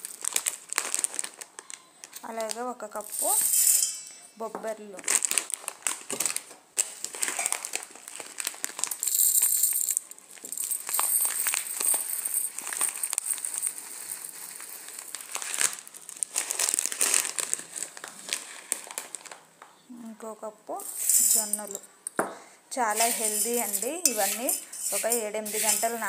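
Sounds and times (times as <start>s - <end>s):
dry grains rattling in a steel pot: 3.0s - 4.1s, 8.9s - 15.3s, 20.8s - 21.8s, 22.9s - 26.0s.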